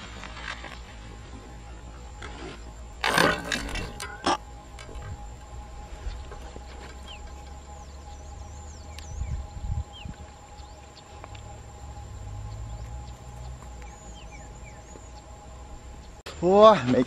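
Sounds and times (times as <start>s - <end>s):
faint steady whine: 0.0s - 16.6s
faint bird chirps: 3.7s - 16.2s.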